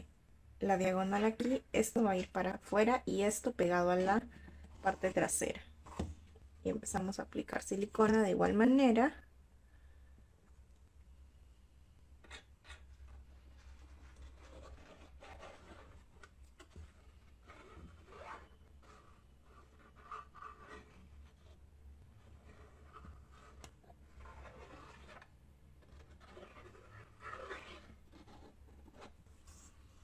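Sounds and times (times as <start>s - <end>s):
rustling of felt and cardboard: 12.2s - 30.0s.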